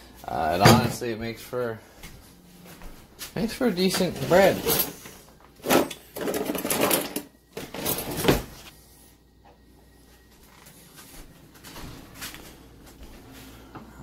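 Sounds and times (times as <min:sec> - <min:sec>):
drawer thumping shut: 0:00.6 - 0:01.0
utensils rattling in drawer: 0:03.9 - 0:05.0, 0:05.6 - 0:08.4.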